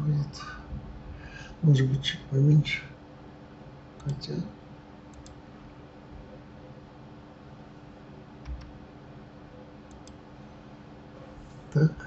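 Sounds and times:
low steady hum: 0.0s - 12.0s
computer mouse clicks: 5.1s - 5.4s, 8.4s - 8.8s, 9.9s - 10.2s.

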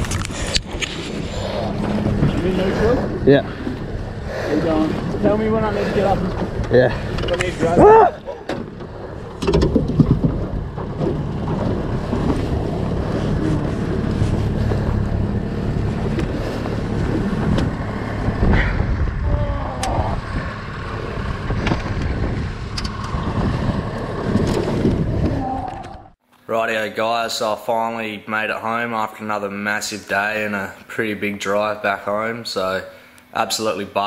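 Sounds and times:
outboard motor running: 0.0s - 25.3s
wind buffeting microphone: 0.0s - 26.2s
water splashing against hull: 8.2s - 18.8s.

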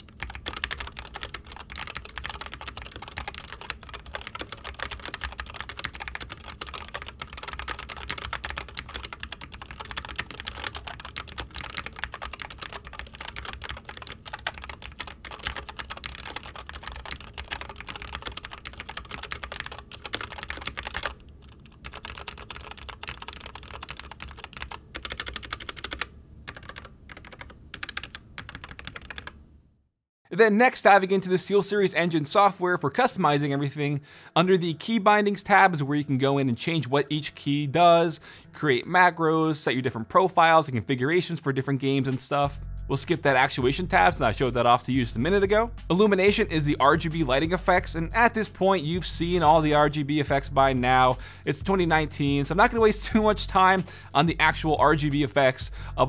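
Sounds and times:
fast keyboard typing: 0.0s - 29.4s, 43.0s - 55.8s.

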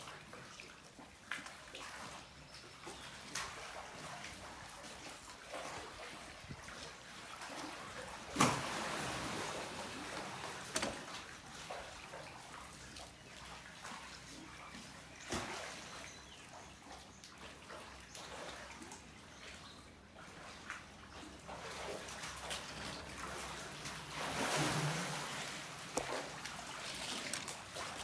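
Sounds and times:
water trickling and splashing: 0.0s - 28.0s.

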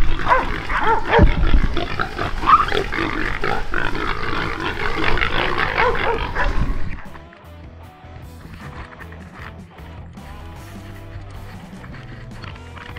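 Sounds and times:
hog squealing and grunting: 0.0s - 7.4s, 8.2s - 12.9s.

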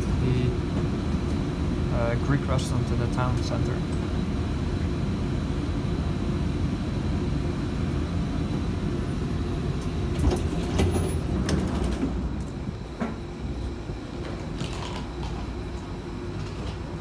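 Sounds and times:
tram wheels rumbling on rails: 9.6s - 13.2s.

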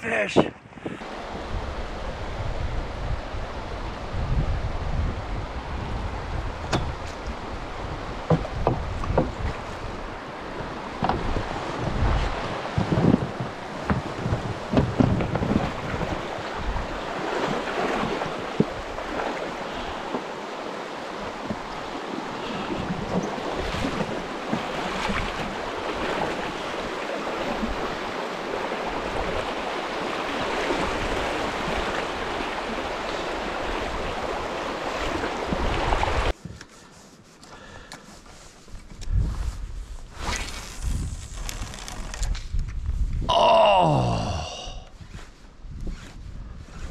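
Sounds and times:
wind gusting on microphone: 0.3s - 20.0s, 38.6s - 46.9s
river water rushing: 5.2s - 36.3s.

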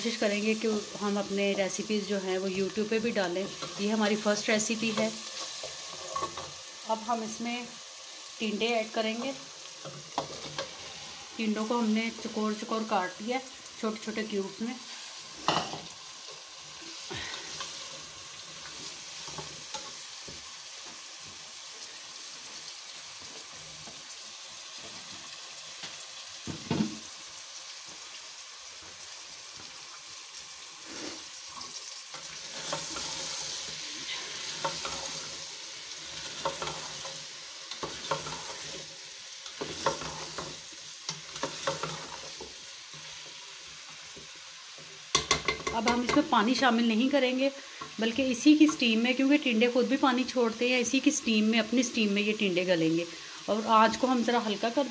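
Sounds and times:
vegetables sizzling in a pot: 0.0s - 54.9s
spatula scraping and knocking pot: 36.2s - 38.8s, 39.6s - 43.2s, 45.1s - 46.3s.

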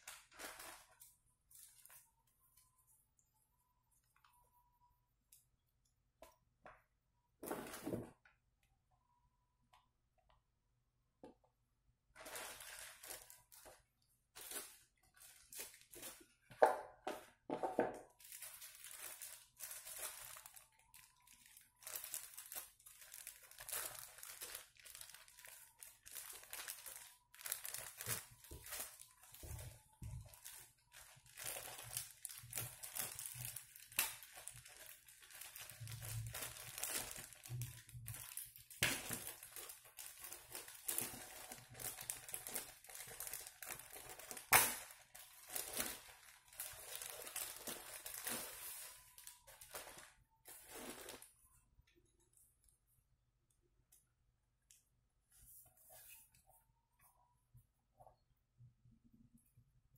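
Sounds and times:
plastic bag crinkling: 0.0s - 2.1s, 12.1s - 16.4s, 18.1s - 51.4s.

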